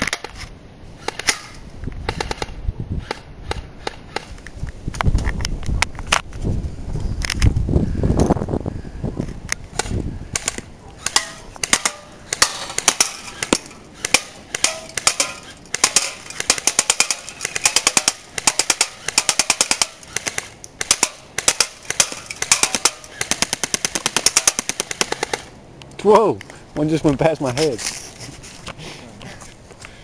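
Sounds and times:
airsoft gun rapid firing: 10.4s - 25.5s.

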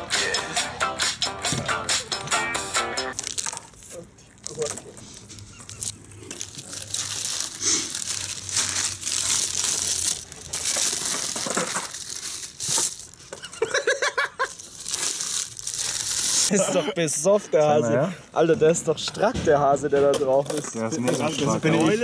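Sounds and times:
food wrapper crinkling: 3.1s - 13.6s, 14.2s - 16.5s.

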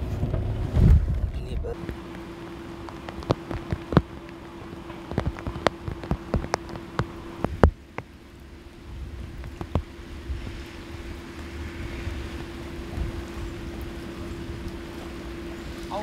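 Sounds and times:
low hum: 0.0s - 16.0s
rain drops tapping: 0.0s - 16.0s
steady rain: 0.0s - 16.0s.

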